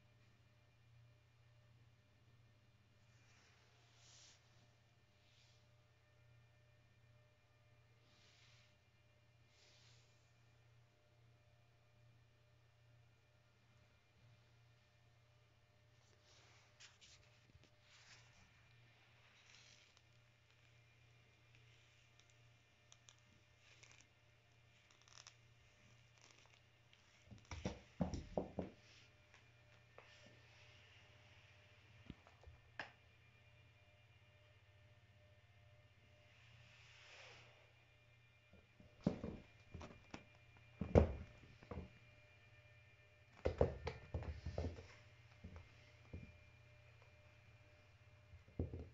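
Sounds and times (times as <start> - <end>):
cat thumping and scrabbling on floor: 39.0 - 40.2, 40.8 - 41.9, 43.4 - 44.9.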